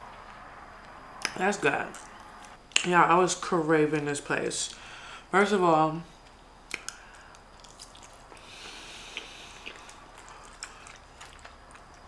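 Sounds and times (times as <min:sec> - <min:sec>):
person chewing food: 0:06.2 - 0:12.0.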